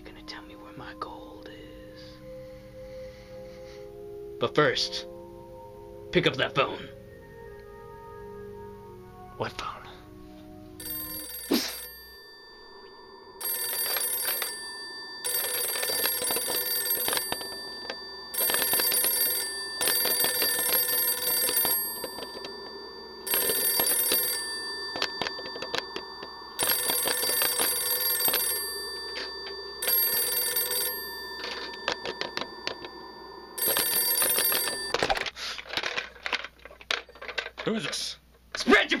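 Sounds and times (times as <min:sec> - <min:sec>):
telephone bell ringing: 0:10.8 - 0:35.3.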